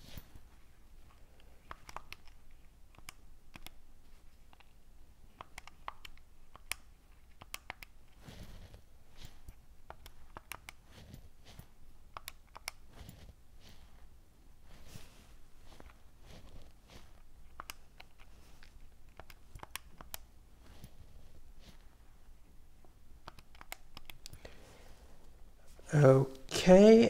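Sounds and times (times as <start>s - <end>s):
calculator keys clicking: 1.6s - 3.8s, 5.3s - 8.0s, 9.2s - 13.3s, 19.1s - 20.9s, 23.2s - 24.4s.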